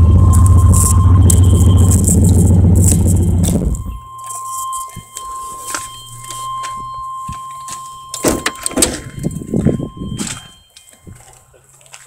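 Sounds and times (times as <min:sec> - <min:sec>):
high-pitched warning tone: 0:00.0 - 0:11.5.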